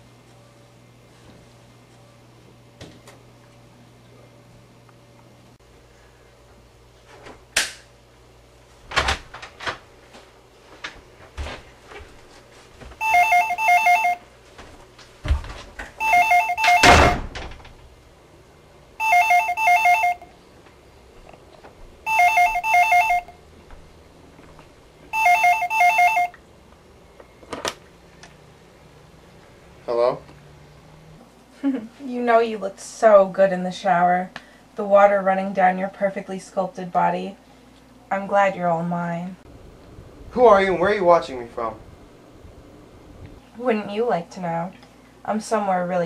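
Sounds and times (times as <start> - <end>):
telephone ringer trilling: 13.0 - 14.2, 16.0 - 17.2, 19.0 - 20.2, 22.1 - 23.3, 25.1 - 26.4.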